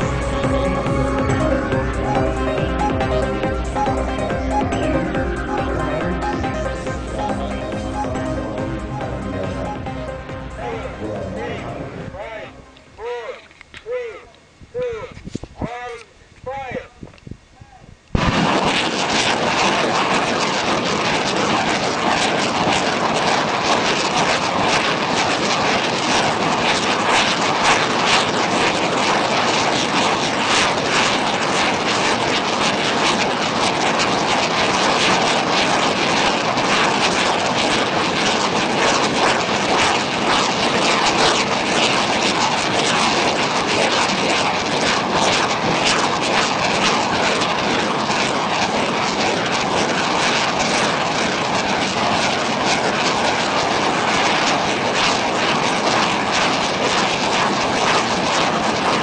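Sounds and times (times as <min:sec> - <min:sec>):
rocket launches rushing and crackling: 0:00.0 - 0:01.5, 0:18.1 - 0:59.0.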